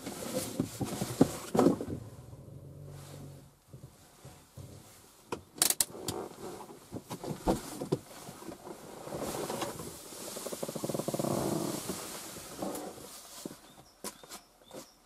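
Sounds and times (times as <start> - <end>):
sharp clicks and knocks: 5.3 - 6.2.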